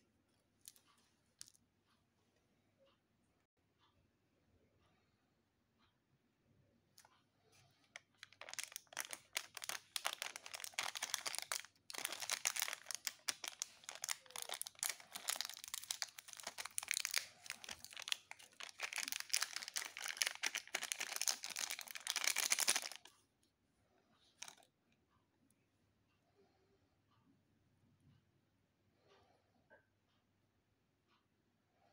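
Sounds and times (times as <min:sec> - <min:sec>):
foil sachet crinkling and tearing: 0:08.2 - 0:23.1.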